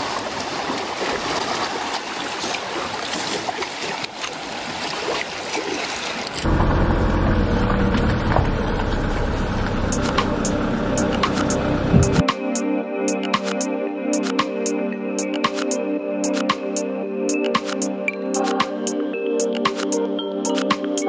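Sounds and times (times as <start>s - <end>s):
waves lapping among rocks: 0.0s - 6.4s
low rumble: 6.4s - 12.2s
steady low tones: 6.4s - 12.3s.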